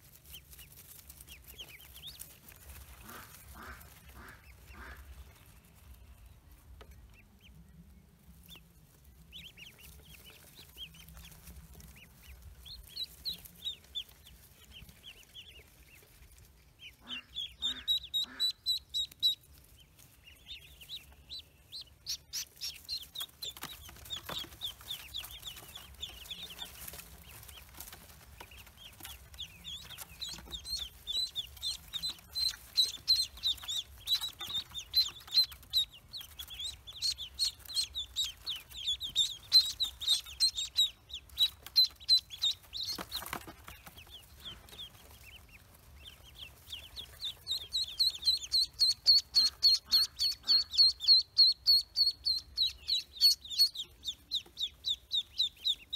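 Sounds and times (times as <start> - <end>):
ducklings peeping: 0.0 - 55.9.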